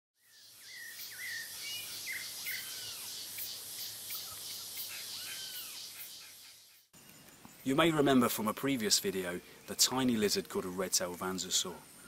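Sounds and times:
birds whistling and calling: 0.2 - 7.9
insects chirping: 0.2 - 12.0.

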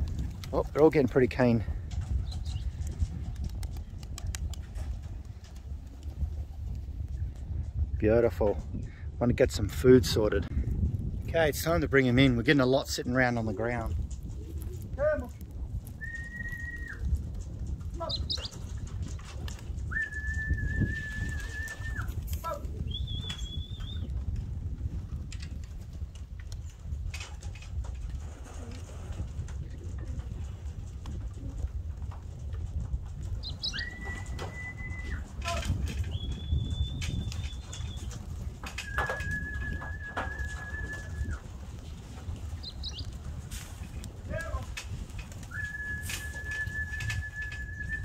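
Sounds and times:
wing flaps: 0.0 - 8.0, 12.6 - 48.0
held whistles: 16.0 - 17.0, 19.8 - 22.1, 22.9 - 24.1, 33.5 - 38.2, 38.8 - 41.4, 45.4 - 48.0.

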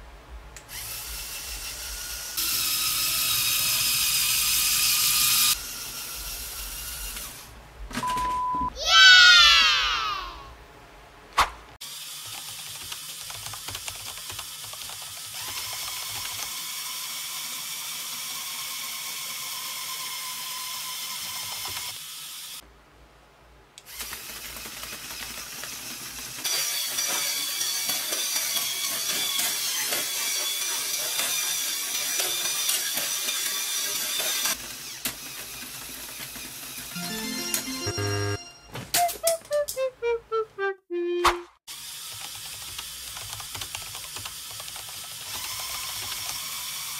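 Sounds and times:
electric motors whining: 0.7 - 7.5.

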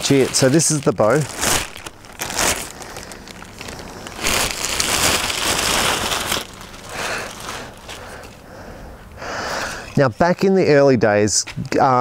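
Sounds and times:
plastic bag crinkling and rustling: 0.0 - 8.4.

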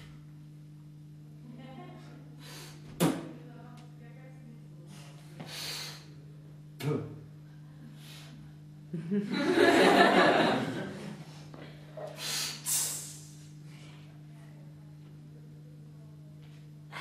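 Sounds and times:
faint low hum: 0.0 - 17.0
short sharp hisses: 5.4 - 6.1, 12.0 - 13.5
audience laughing: 9.0 - 11.2.

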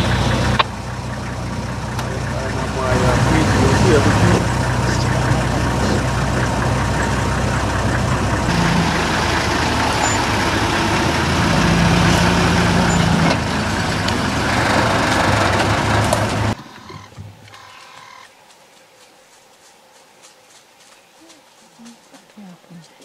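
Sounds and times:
vehicle engine running: 0.0 - 18.3.

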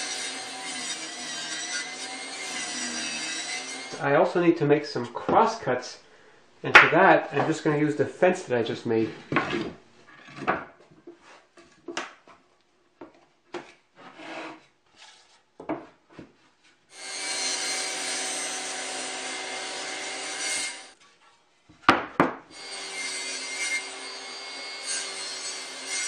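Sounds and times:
circular saw cutting wood: 0.0 - 4.0, 16.9 - 21.0, 22.5 - 26.0
knocks and clicks of handling wood: 9.3 - 12.4, 13.0 - 13.8, 15.6 - 16.4, 21.7 - 22.5.

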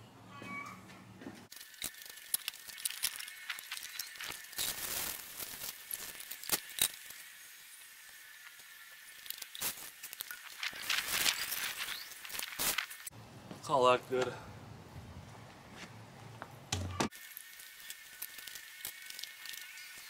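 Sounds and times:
hose and bucket clicks: 1.5 - 4.8
water hissing from hose: 1.5 - 13.1, 17.1 - 20.0.

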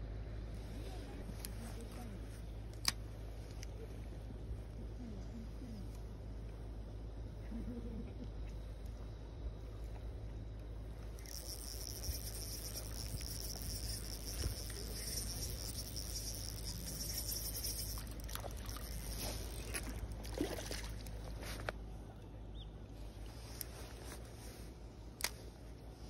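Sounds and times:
fishing reel whirring: 11.2 - 20.3
fish splashing water: 11.2 - 21.2.

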